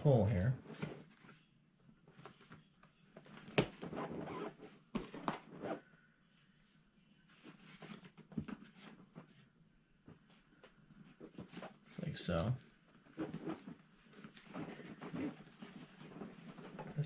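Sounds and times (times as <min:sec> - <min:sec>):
fabric rustling and scratching: 0:03.2 - 0:05.8, 0:10.2 - 0:17.0.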